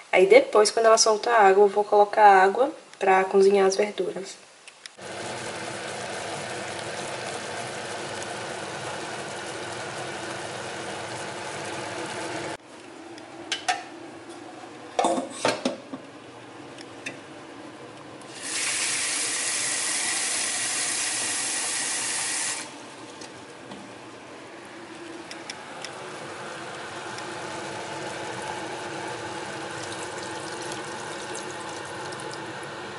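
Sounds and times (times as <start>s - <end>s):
pot cooking hiss: 5.0s - 12.6s, 18.2s - 23.2s, 24.6s - 32.9s.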